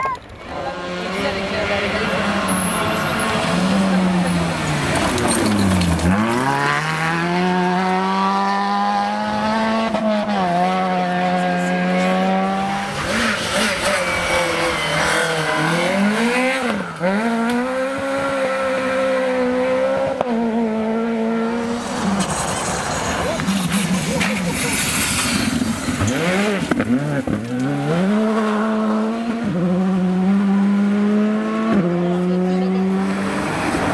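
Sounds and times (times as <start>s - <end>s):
rally car engines revving: 0.2s - 33.9s
car passing by: 20.9s - 33.9s.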